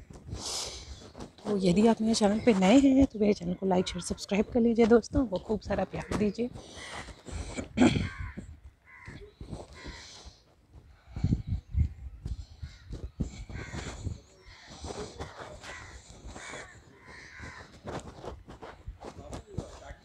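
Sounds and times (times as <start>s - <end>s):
crows cawing: 7.8s - 10.3s, 12.6s - 18.3s.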